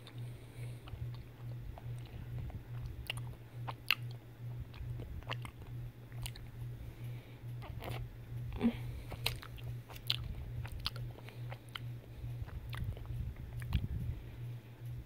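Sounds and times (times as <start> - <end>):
chewing chocolate: 0.0 - 14.2
low hum: 0.0 - 15.0
mouth clicks: 0.8 - 6.5.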